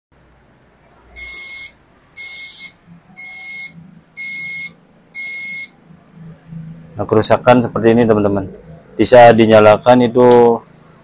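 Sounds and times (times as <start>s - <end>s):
printer error beeps: 1.2s - 5.8s.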